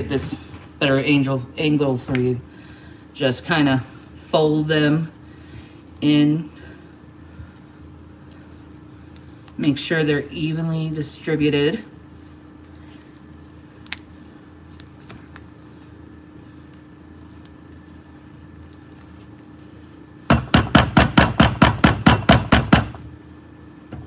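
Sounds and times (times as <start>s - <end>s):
low steady hum: 0.0s - 24.0s
faint stirring clicks: 5.1s - 9.9s, 11.9s - 20.0s.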